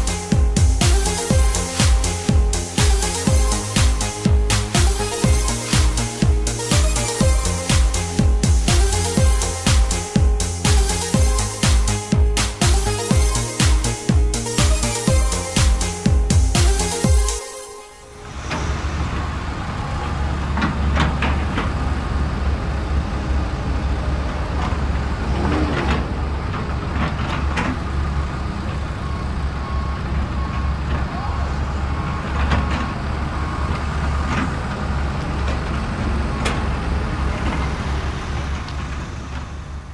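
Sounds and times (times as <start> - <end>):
heavy engine rumble: 0.0 - 39.9.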